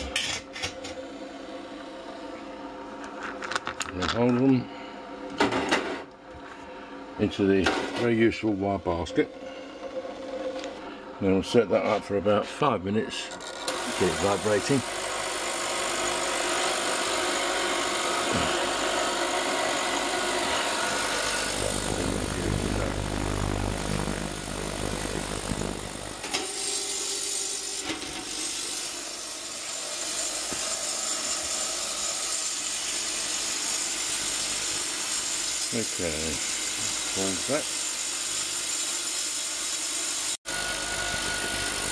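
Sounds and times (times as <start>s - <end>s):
ultrasonic cleaner buzzing hiss: 13.7s - 41.9s.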